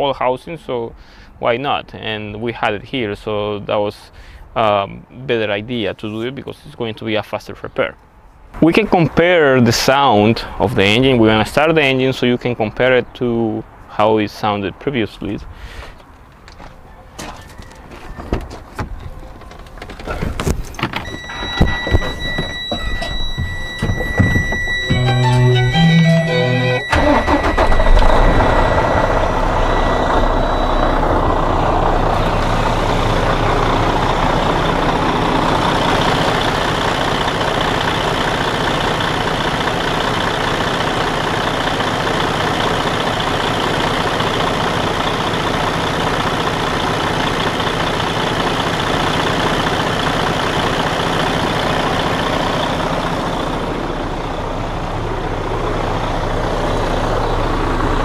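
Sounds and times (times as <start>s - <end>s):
diesel engine idling: 18.9s - 58.0s.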